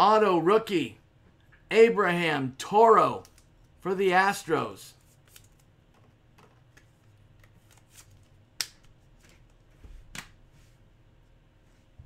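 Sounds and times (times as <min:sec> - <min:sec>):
hands handling cards: 0:05.0 - 0:10.4.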